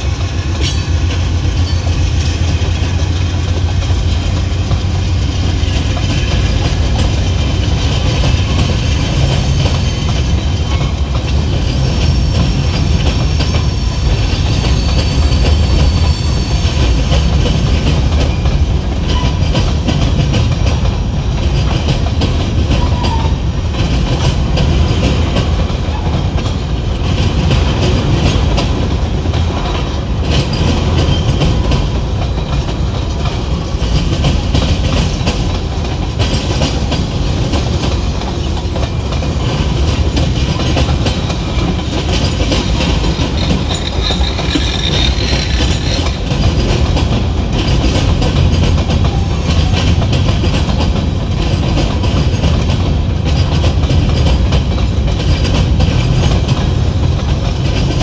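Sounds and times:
train rolling past: 0:00.0 - 0:58.0
wheels clattering over track: 0:16.8 - 0:58.0.

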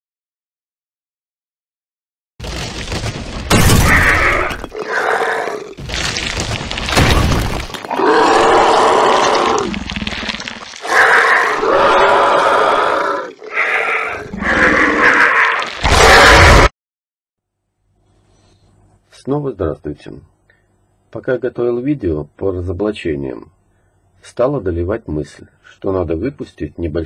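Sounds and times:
monster roars and growls: 0:03.5 - 0:16.7.

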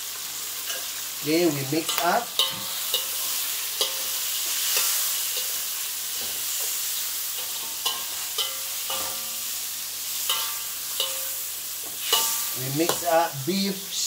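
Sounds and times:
food sizzling in a wok: 0:00.0 - 0:14.0
metal spatula clanking on wok: 0:01.8 - 0:05.6, 0:07.4 - 0:09.5, 0:10.2 - 0:13.2.

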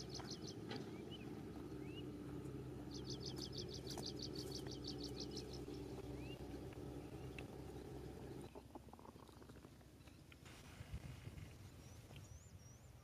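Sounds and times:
bird chirping: 0:00.0 - 0:10.4.

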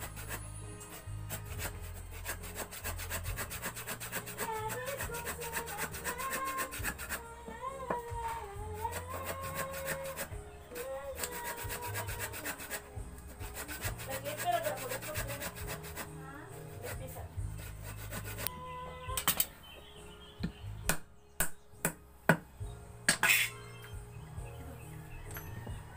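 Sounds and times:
hand saw cutting wood: 0:00.0 - 0:07.2, 0:08.8 - 0:16.1, 0:16.7 - 0:18.5.

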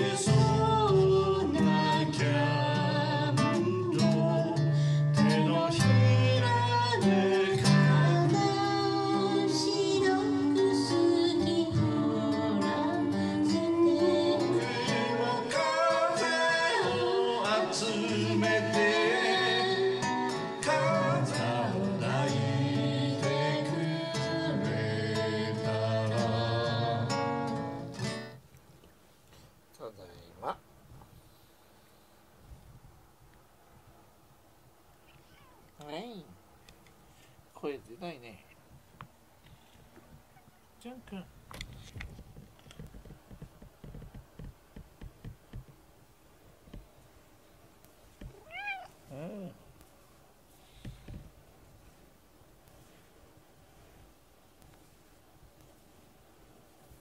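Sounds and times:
acoustic guitar strumming: 0:00.0 - 0:10.9, 0:14.0 - 0:28.4
person singing into a microphone: 0:00.0 - 0:27.2.

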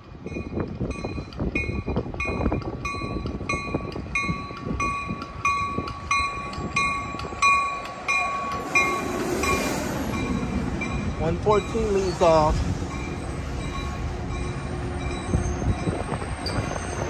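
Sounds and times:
train rumble: 0:00.0 - 0:17.0
train bell ringing: 0:00.2 - 0:17.0
train hiss: 0:07.8 - 0:14.8.

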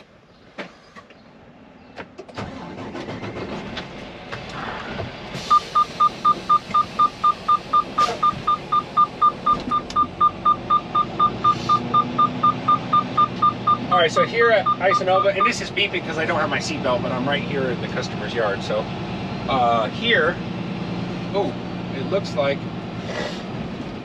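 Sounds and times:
truck engine running: 0:02.4 - 0:24.0
seatbelt warning beeping: 0:05.5 - 0:13.9, 0:14.6 - 0:15.6.

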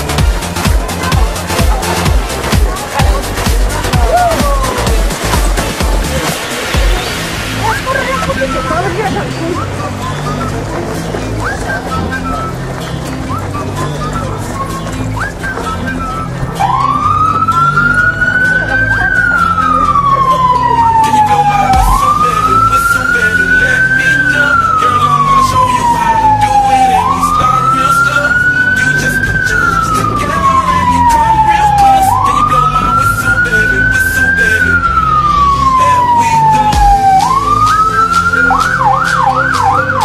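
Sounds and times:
siren rapid yelp: 0:13.3 - 0:40.0
electronic siren wailing: 0:15.8 - 0:40.0.

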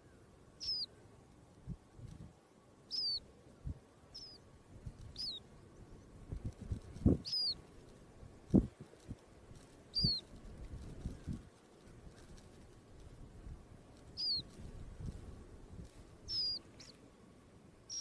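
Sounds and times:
bird chirping: 0:00.0 - 0:01.1, 0:02.9 - 0:03.3, 0:04.1 - 0:06.1, 0:07.2 - 0:07.6, 0:09.9 - 0:10.3, 0:14.0 - 0:14.6, 0:16.2 - 0:17.0
rustling: 0:06.3 - 0:17.1.

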